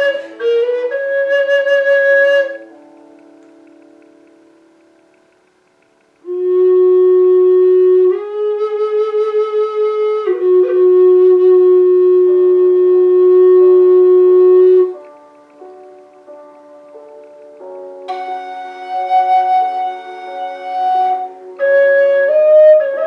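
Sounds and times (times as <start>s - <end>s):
flute playing long notes: 0.0s - 3.1s, 6.2s - 15.2s, 18.1s - 23.0s.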